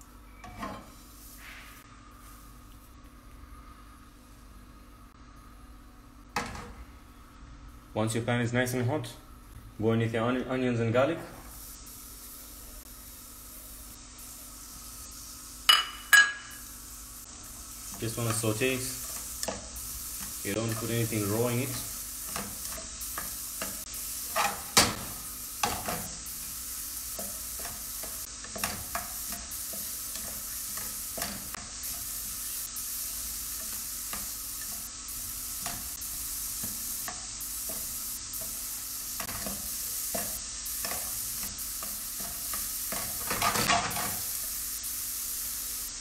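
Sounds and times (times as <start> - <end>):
onions sizzling in a frying pan: 0.0 - 2.7, 10.9 - 46.0
spatula scraping a pan: 17.9 - 26.2.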